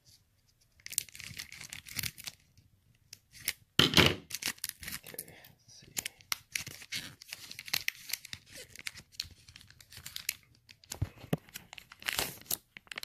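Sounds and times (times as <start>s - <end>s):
foil wrapper ripping and crinkling: 0.8s - 2.5s, 4.2s - 5.2s, 6.3s - 13.0s.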